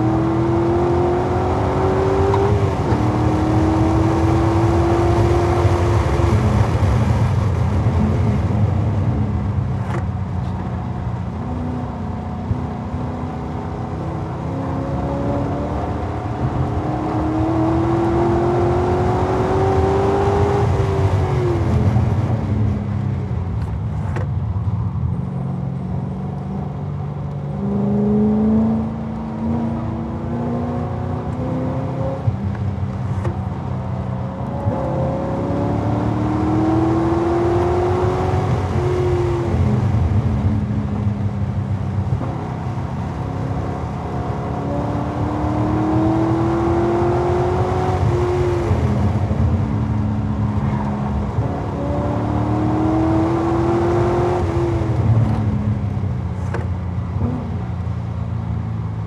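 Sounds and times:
sports car engine revving: 0:00.0 - 0:23.1, 0:25.5 - 0:58.0.

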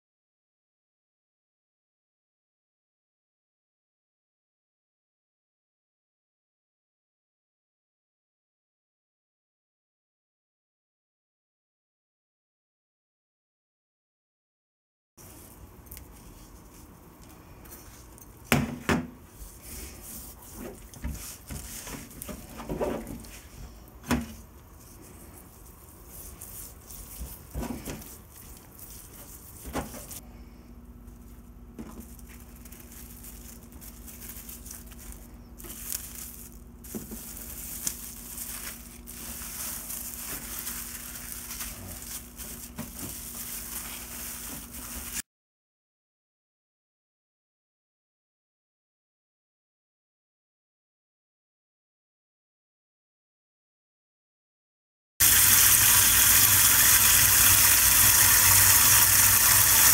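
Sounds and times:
steady low hum: 0:15.2 - 0:45.2
hands rubbing cure into meat: 0:24.8 - 0:30.2
cling film crinkling: 0:31.2 - 0:45.2.

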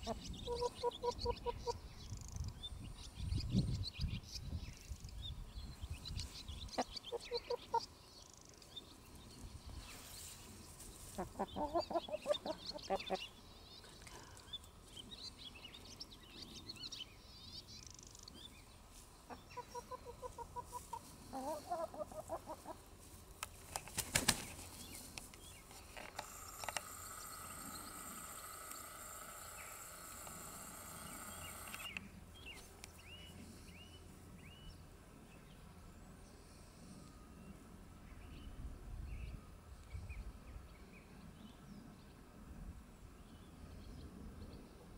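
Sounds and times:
high chirping calls: 0:00.0 - 0:04.2, 0:05.9 - 0:08.8, 0:11.2 - 0:13.9
steady high hum: 0:04.7 - 0:41.4
hens clucking: 0:11.1 - 0:13.3, 0:19.3 - 0:22.9
wings flapping: 0:23.4 - 0:25.0.

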